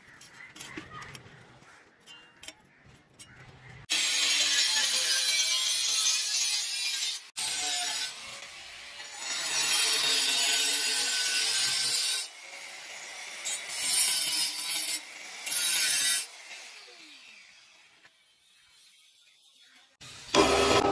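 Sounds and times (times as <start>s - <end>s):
angle grinder cutting steel: 3.9s - 20.9s.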